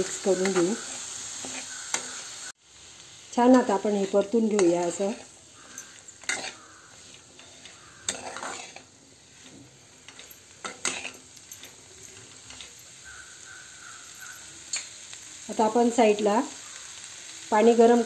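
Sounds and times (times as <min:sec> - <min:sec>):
spatula scraping frying pan: 0:00.0 - 0:02.5, 0:03.4 - 0:14.8
soft sizzle of frying: 0:00.0 - 0:18.0.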